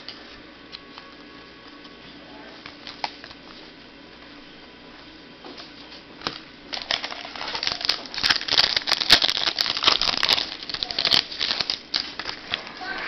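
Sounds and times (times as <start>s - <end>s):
trading cards crinkling and rustling: 2.6s - 3.7s, 5.6s - 13.0s.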